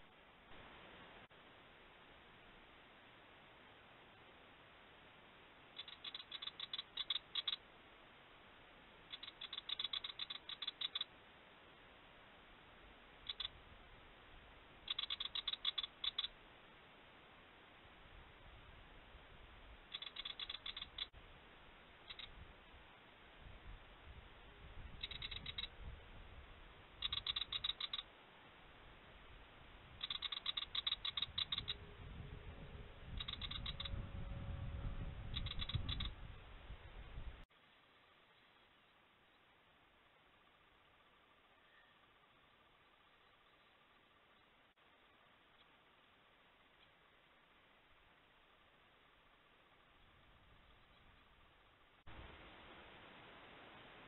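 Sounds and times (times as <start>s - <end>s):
bird scolding chatter: 5.8s - 7.6s, 9.1s - 11.1s, 13.3s - 13.6s, 14.8s - 16.3s, 19.9s - 21.1s, 25.0s - 25.7s, 27.0s - 28.0s, 30.0s - 31.8s, 33.1s - 33.9s, 35.3s - 36.1s
low rumble: 31.6s - 37.4s.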